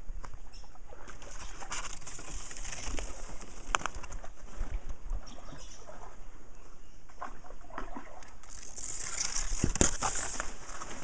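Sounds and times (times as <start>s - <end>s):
reed leaves rustling against canoe: 0.9s - 6.2s, 7.1s - 11.0s.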